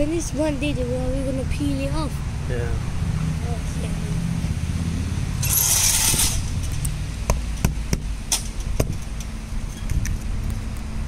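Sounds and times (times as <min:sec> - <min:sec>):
low background rumble: 0:00.0 - 0:11.0
tape ripping off: 0:05.4 - 0:06.6.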